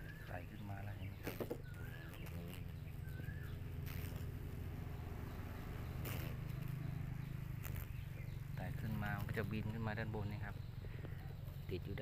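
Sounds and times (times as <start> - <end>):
bird whistled call: 0.0 - 4.2
steady low hum: 0.0 - 12.0.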